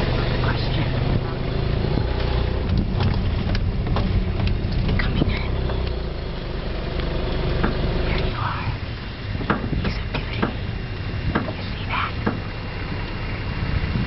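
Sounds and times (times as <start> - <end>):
vehicle engine running: 0.0 - 14.0
vehicle knocks and rattles: 1.1 - 6.4, 7.0 - 8.6, 9.2 - 13.1.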